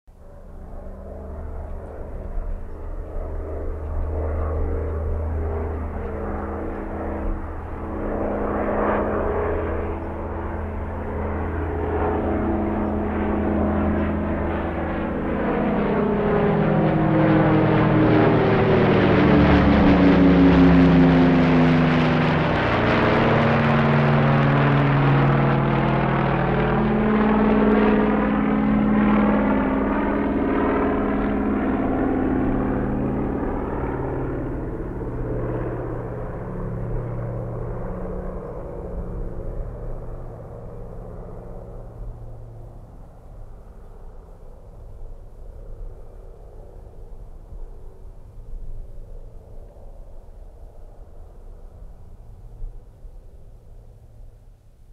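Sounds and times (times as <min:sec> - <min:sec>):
airplane flying overhead: 0:00.1 - 0:54.9.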